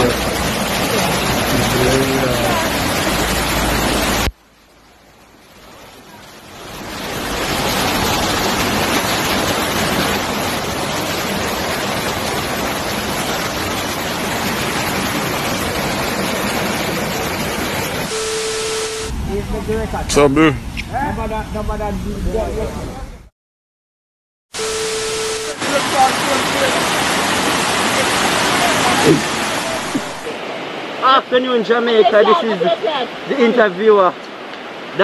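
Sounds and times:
floodwater rushing: 0.0s - 22.8s, 24.6s - 35.0s
short steady tone: 18.1s - 19.2s, 24.6s - 25.6s.

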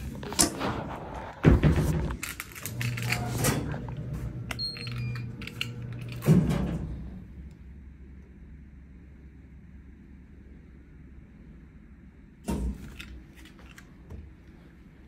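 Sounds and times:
low motor hum: 0.0s - 12.2s
machine clicks and clatter: 2.1s - 6.8s.

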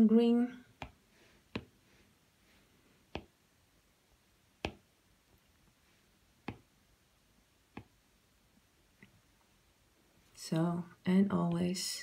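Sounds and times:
stylus tapping glass screen: 0.8s - 1.8s, 3.1s - 3.4s, 4.6s - 4.9s, 6.4s - 6.7s, 7.7s - 8.0s.

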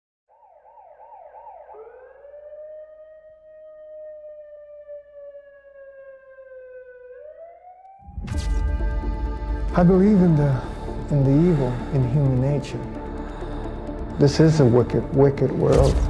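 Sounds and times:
police siren: 0.3s - 9.2s.

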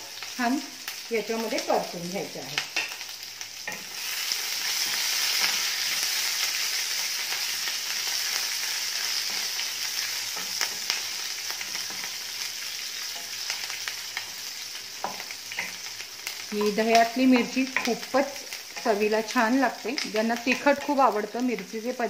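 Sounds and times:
chillies sizzling in hot oil: 0.0s - 22.0s
wooden spatula tapping and scraping: 15.0s - 15.8s, 16.5s - 18.1s, 20.0s - 21.0s.

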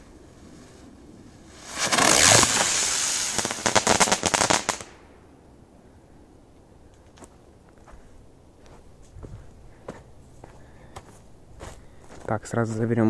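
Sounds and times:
firework rushing hiss: 0.1s - 5.0s
firework crackles: 0.1s - 5.2s.

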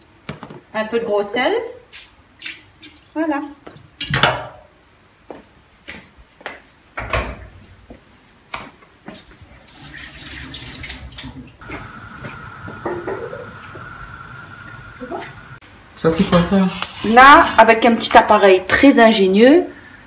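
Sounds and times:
tap water running into pot: 9.8s - 15.6s, 16.2s - 17.5s
steady high hum: 11.6s - 18.2s
pot knocking against metal sink: 12.7s - 13.5s.

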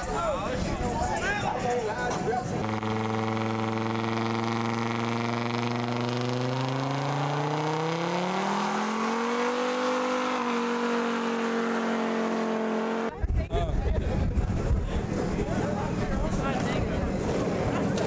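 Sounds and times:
truck engine revving high: 2.5s - 13.2s.

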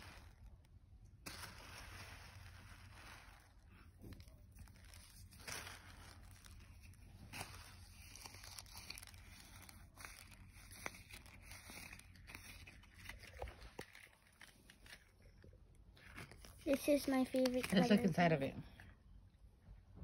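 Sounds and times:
crinkling and rustling: 0.0s - 19.0s.

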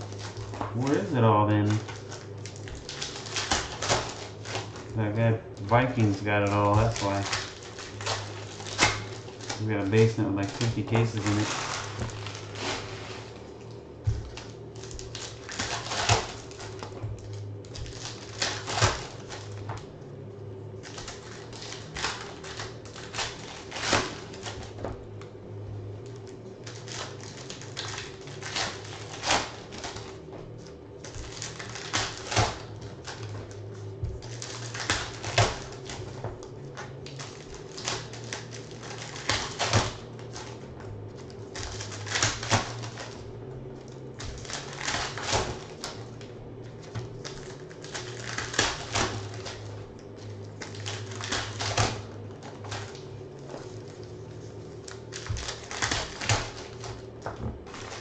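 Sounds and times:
low steady hum: 0.0s - 58.0s.

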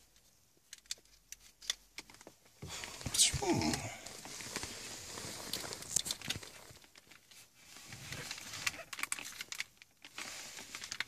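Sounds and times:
small plastic clicks: 0.2s - 2.3s
plastic rustling: 2.0s - 11.0s.

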